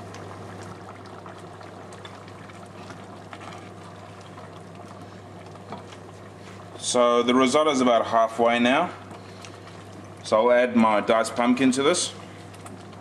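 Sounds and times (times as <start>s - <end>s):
rice simmering with small pops: 0.0s - 13.0s.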